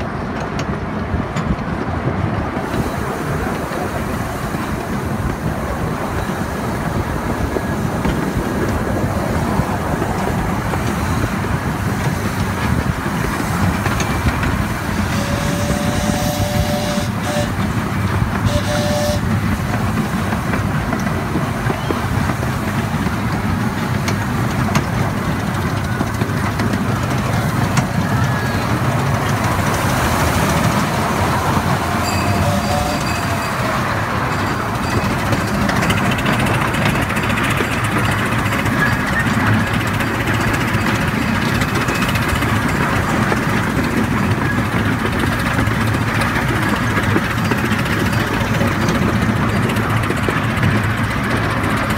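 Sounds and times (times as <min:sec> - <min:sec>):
train wheels clattering on rails: 0:00.0 - 0:51.9
train whistle toots: 0:15.0 - 0:17.8, 0:18.4 - 0:19.4, 0:32.0 - 0:34.0.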